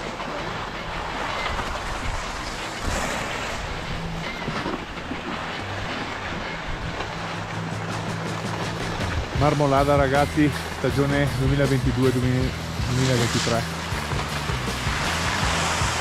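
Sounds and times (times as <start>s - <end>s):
wind buffeting microphone: 0.8s - 16.0s.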